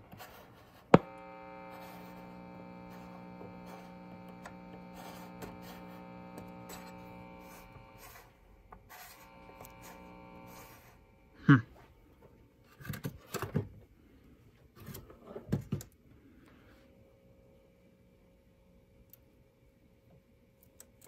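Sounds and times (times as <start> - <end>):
radio speaker mains hum: 0.0 - 12.5
radio crackles: 0.9 - 8.2, 9.2 - 10.7.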